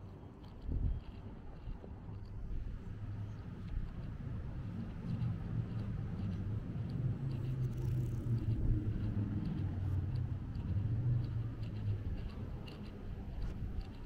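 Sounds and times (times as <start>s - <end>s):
reversed city street rumble: 0.0s - 14.0s
faint light ticks: 3.2s - 14.0s.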